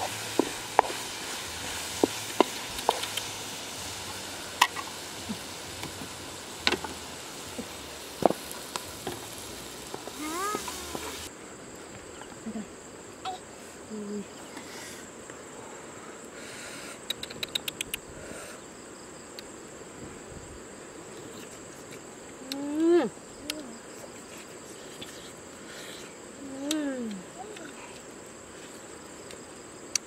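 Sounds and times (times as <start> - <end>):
insects chirring: 0.0 - 30.0
quick clicks: 17.0 - 18.0.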